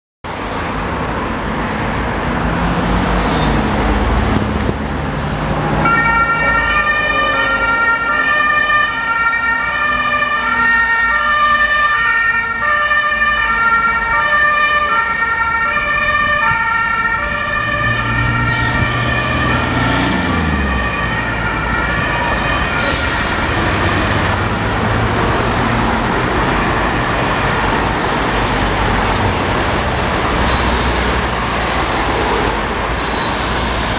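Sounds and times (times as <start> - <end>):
road traffic noise: 0.2 - 33.9
two-tone ambulance siren: 5.7 - 31.6.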